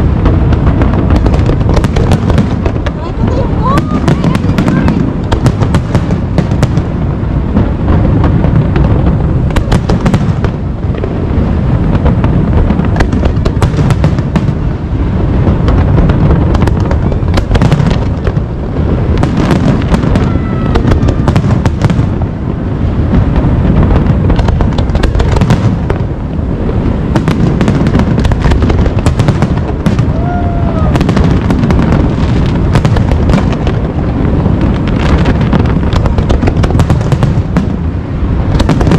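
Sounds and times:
fireworks cracking and crackling: 0.0s - 38.9s
fireworks exploding: 0.0s - 38.9s
firework whistles: 19.0s - 22.1s.

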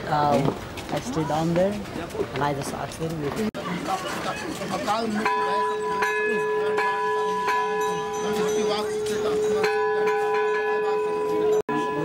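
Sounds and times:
temple bell ringing: 5.1s - 12.0s.

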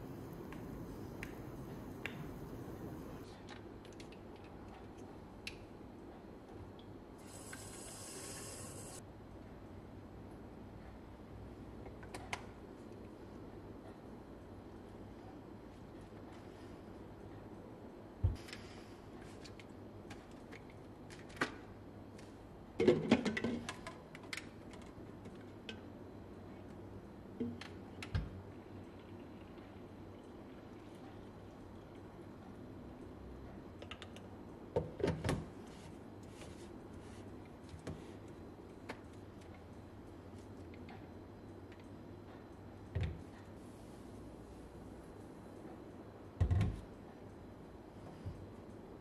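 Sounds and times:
spray bottle hiss: 7.2s - 9.0s.

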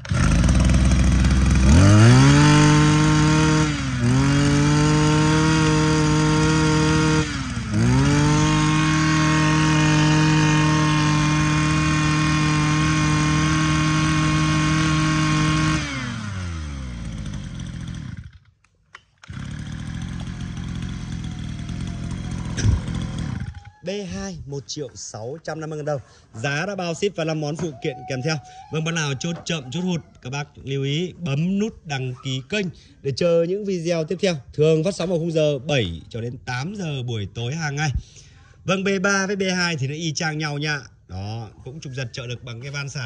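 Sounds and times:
brush cutter engine revving: 0.0s - 23.8s.

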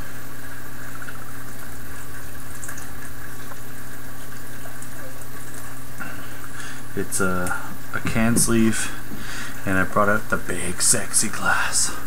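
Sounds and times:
low hum: 0.0s - 12.0s
steady hiss: 5.9s - 12.0s.

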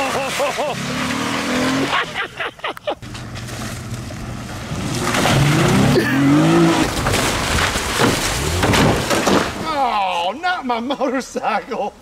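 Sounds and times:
car engine revving: 0.0s - 2.2s, 3.0s - 9.1s.

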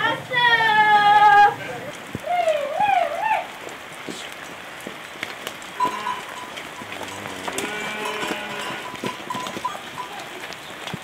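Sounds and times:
livestock bleat: 5.8s - 9.0s.

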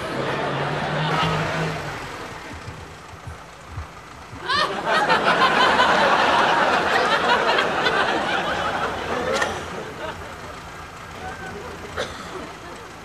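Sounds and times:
studio audience laughter: 0.1s - 1.9s, 4.4s - 10.8s.

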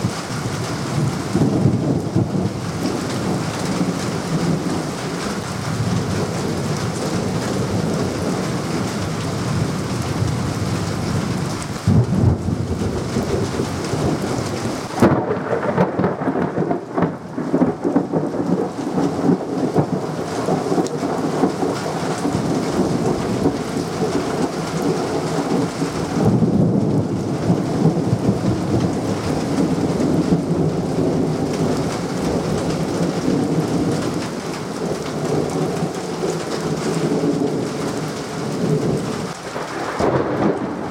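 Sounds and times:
rolling thunder: 0.0s - 40.9s
steady rain: 0.0s - 40.9s
thunderclap: 9.5s - 40.9s.

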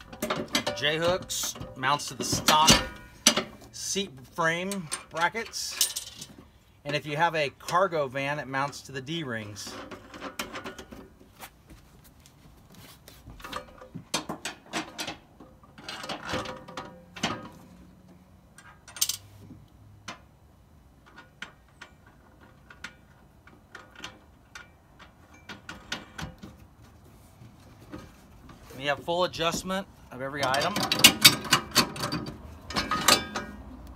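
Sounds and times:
metal rack clicking and rattling: 0.0s - 4.0s, 4.6s - 6.3s, 30.4s - 33.9s.

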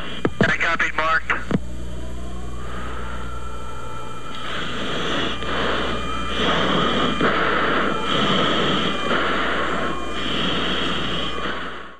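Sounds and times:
radio static hiss: 0.0s - 1.8s
low hum: 0.0s - 11.9s.

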